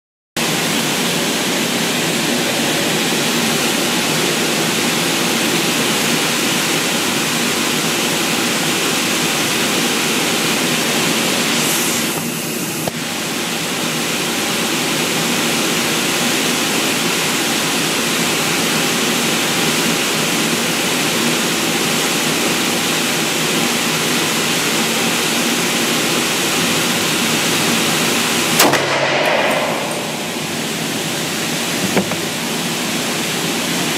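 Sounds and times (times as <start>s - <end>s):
loud rushing hiss: 0.4s - 33.9s
sharp click: 28.6s - 30.3s.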